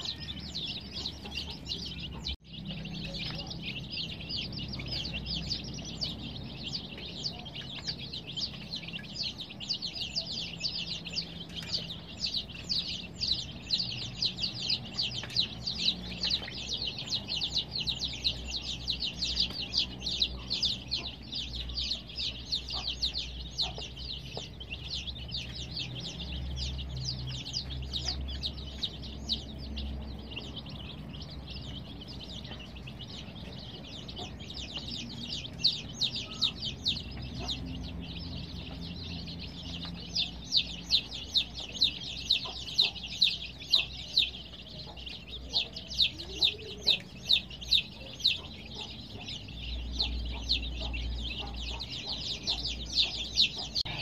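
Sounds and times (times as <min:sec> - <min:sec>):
baby chicks peeping: 0:00.0 - 0:54.0.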